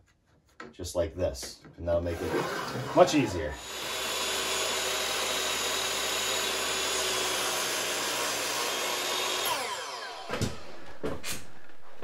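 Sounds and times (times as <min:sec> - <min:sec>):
miter saw motor whine: 0:02.4 - 0:10.9.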